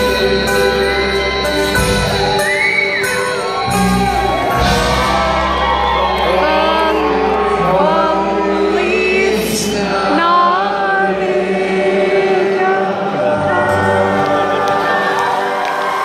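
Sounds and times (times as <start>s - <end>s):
country band playing: 0.0s - 16.0s
person singing: 0.0s - 16.0s.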